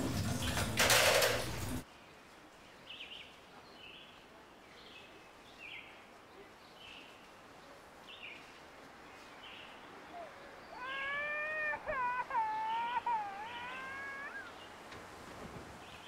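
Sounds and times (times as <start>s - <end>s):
long wailing cry: 10.1s - 14.6s.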